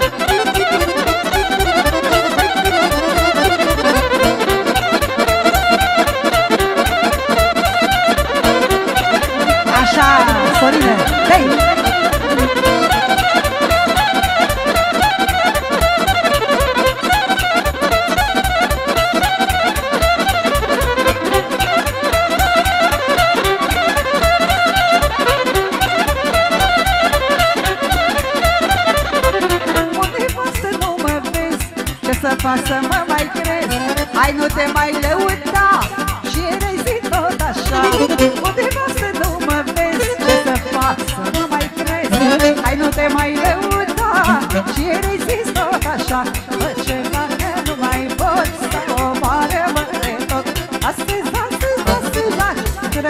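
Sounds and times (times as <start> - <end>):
fast violin lead: 0.0 - 30.4, 37.6 - 41.2, 41.9 - 45.2
fast ornamented folk melody: 0.0 - 53.0
quick bass and chord beat: 0.7 - 14.9, 37.5 - 38.8, 41.9 - 44.9.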